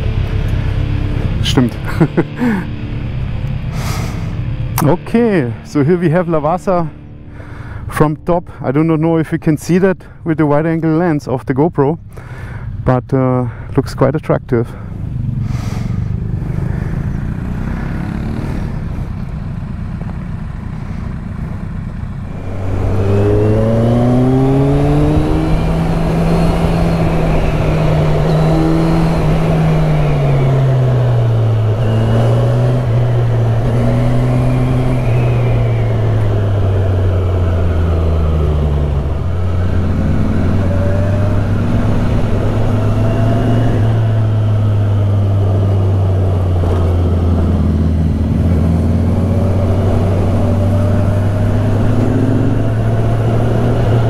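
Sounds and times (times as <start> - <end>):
motorcycle engine idling: 14.8 - 23.0
motorcycle accelerating away: 16.0 - 19.6, 22.1 - 54.0.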